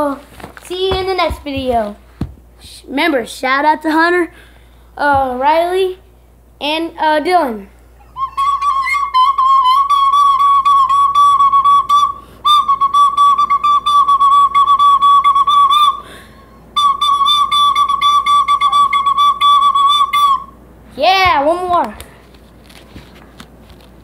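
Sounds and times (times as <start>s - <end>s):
fluttering high whistle blasts: 8.1s - 20.6s.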